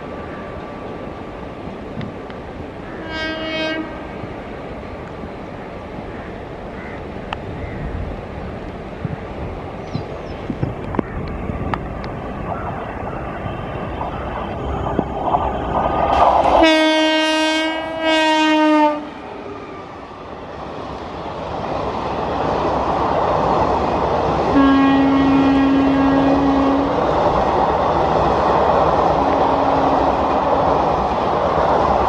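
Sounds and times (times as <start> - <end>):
train running on rails: 0.0 - 32.0
locomotive air horn: 3.0 - 4.1, 16.6 - 19.2, 24.5 - 27.0.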